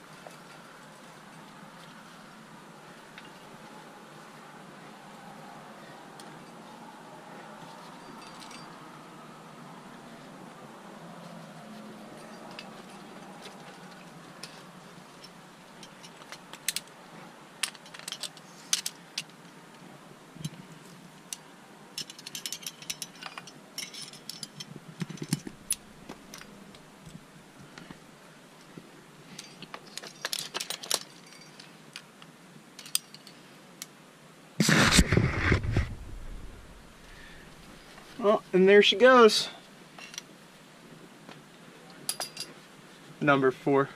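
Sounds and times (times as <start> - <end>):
metal climbing gear clinking: 2.9 - 3.8, 7.6 - 9.0, 11.8 - 17.0, 17.6 - 19.6, 20.4 - 27.9, 28.6 - 33.6, 39.9 - 40.3, 41.9 - 42.6.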